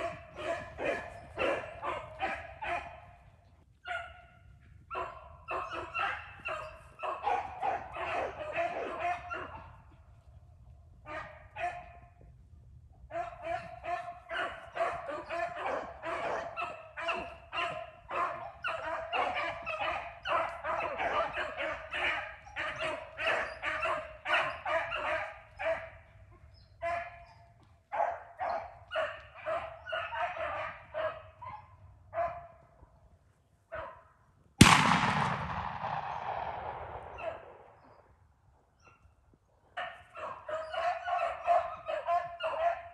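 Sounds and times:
beagles baying: 0:00.0 - 0:03.3, 0:04.9 - 0:09.9, 0:13.1 - 0:27.2, 0:28.0 - 0:32.4, 0:39.8 - 0:42.9.

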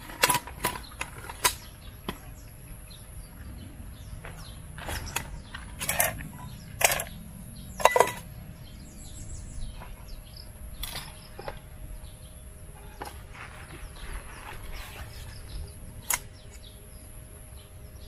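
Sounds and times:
metal cooking pots clinking: 0:07.8 - 0:08.3.

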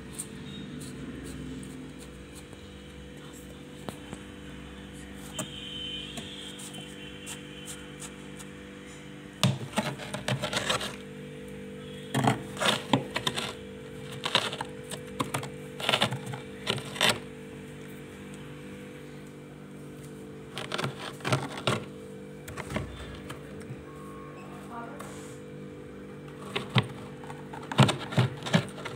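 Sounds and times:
metal spoon scraping freezer frost: 0:09.4 - 0:11.1, 0:11.8 - 0:17.3, 0:20.5 - 0:21.9, 0:22.5 - 0:23.4, 0:26.3 - 0:28.9.

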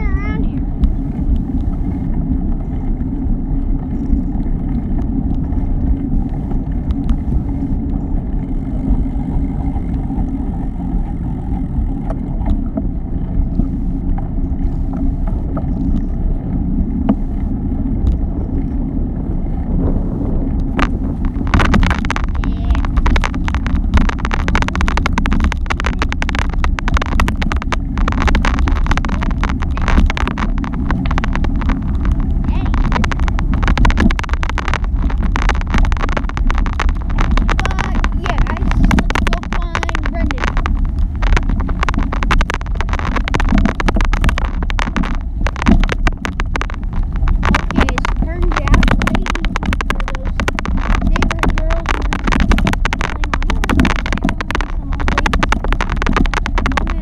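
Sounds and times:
rapid crackling and rattling: 0:00.0 - 0:57.0
road noise: 0:00.0 - 0:57.0
wind rumble on microphone: 0:00.0 - 0:57.0.

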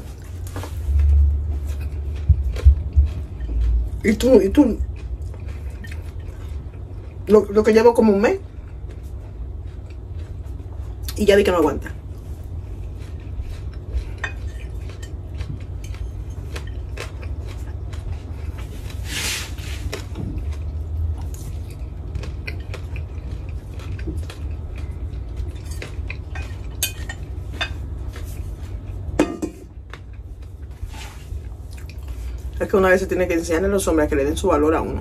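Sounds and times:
steady low hum: 0:00.0 - 0:35.0
fork clinking against plate: 0:25.6 - 0:27.8.

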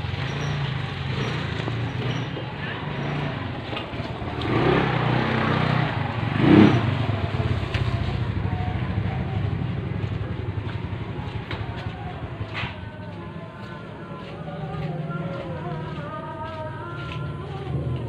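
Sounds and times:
small motorcycle engine running: 0:00.0 - 0:12.6.

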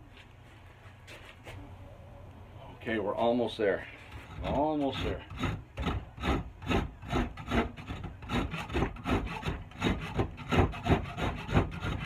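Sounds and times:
hand tool scraping wooden handle: 0:04.0 - 0:12.0.

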